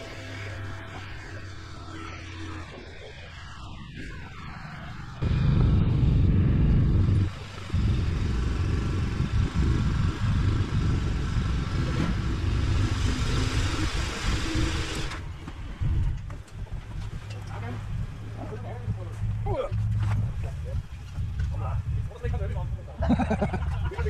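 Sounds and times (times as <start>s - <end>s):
riding noise rush: 0.0s - 24.0s
motorcycle engine running: 5.2s - 14.2s.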